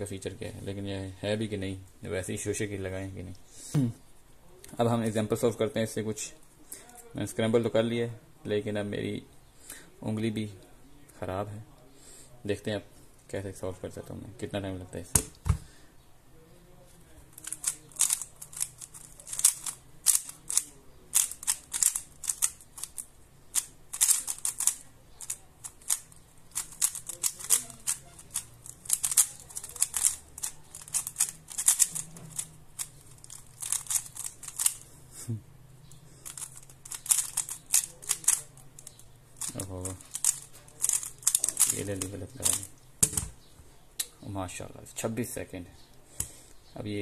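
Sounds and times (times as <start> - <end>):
speed cube clicking: 17.4 - 34.8, 36.2 - 42.7.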